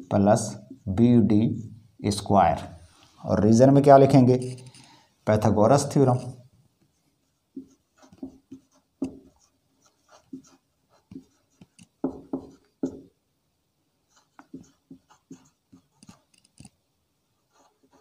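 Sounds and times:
marker pen writing: 0:04.2 - 0:05.0, 0:05.8 - 0:13.2, 0:14.0 - 0:18.0.

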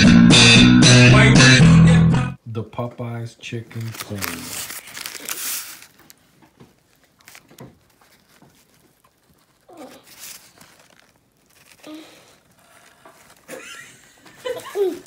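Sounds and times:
paper wrapper rustling: 0:03.5 - 0:15.0.

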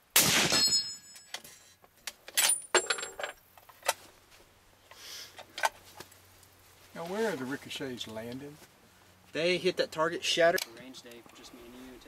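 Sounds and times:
suppressed rifle shot: 0:00.2 - 0:00.8
steel target ringing: 0:00.4 - 0:01.3
brass case clinking: 0:02.4 - 0:03.4.

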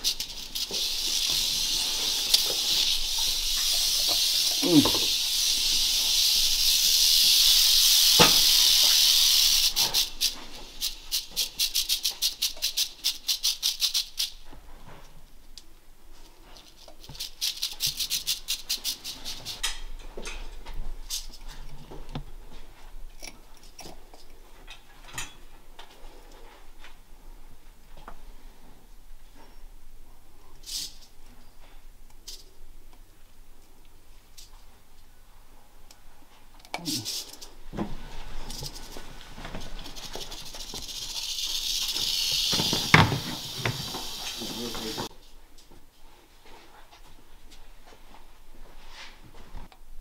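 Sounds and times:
rattlesnake rattling its tail: 0:00.0 - 0:14.5, 0:16.4 - 0:19.7, 0:30.6 - 0:31.0, 0:36.9 - 0:45.1.

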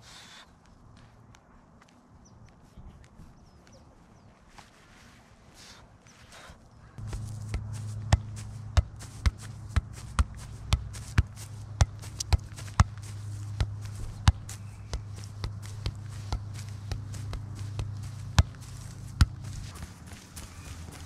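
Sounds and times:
steady low hum: 0:06.8 - 0:21.0
shoe kicking soccer ball: 0:07.0 - 0:21.0.

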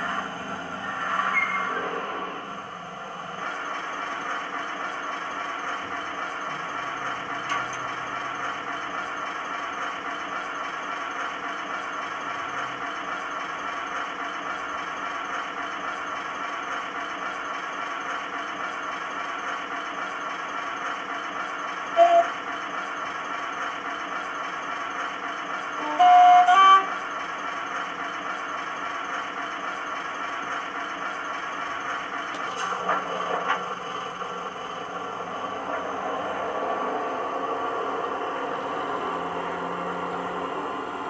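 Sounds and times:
diesel engine idling: 0:00.0 - 0:41.0
brief squeal: 0:00.8 - 0:02.3.

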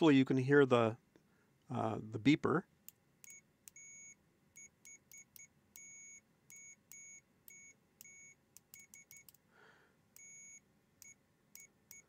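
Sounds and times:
high-pitched multimeter beeps: 0:03.2 - 0:09.4, 0:10.2 - 0:12.0.

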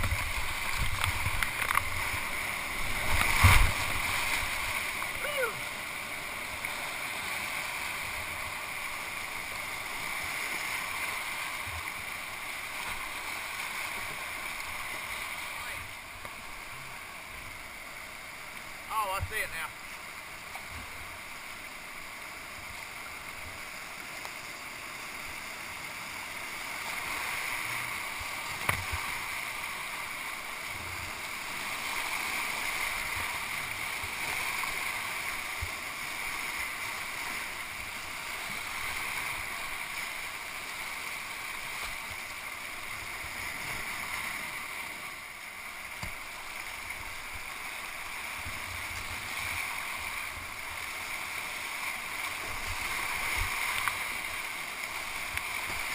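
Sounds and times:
whitewater rapids rushing: 0:00.0 - 0:55.9.

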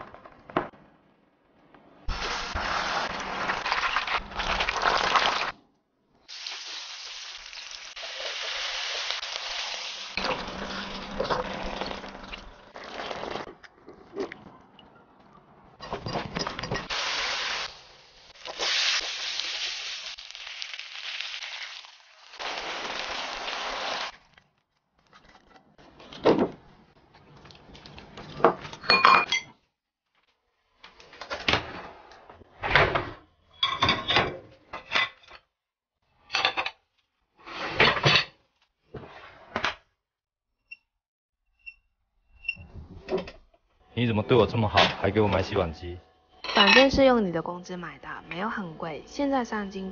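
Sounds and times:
dishes clinking and clattering: 0:15.8 - 0:16.9, 0:28.3 - 0:29.6, 0:46.4 - 0:47.0.

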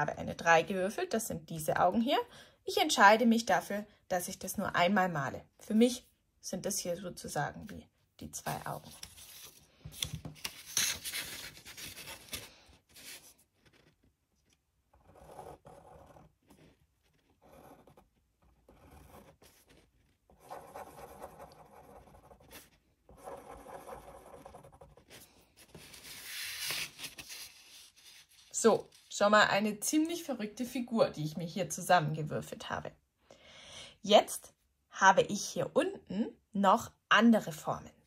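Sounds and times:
pen scratching on paper: 0:12.9 - 0:14.1, 0:14.9 - 0:28.5.

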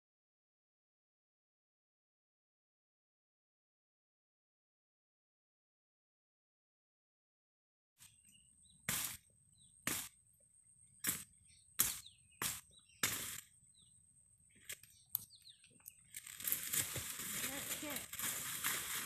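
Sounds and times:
faint bird chirps: 0:08.0 - 0:16.2
crunching through dry leaves: 0:16.0 - 0:19.0.

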